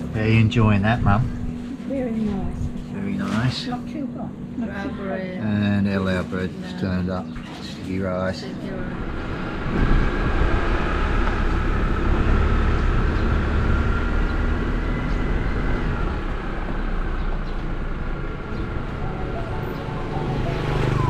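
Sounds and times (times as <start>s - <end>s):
road noise: 0.0s - 21.0s
vehicle engine: 0.0s - 21.0s.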